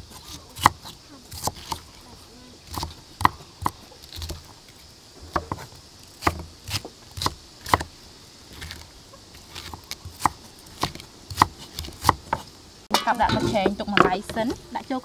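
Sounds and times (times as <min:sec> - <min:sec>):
knife chopping on wooden board: 0:09.6 - 0:12.5.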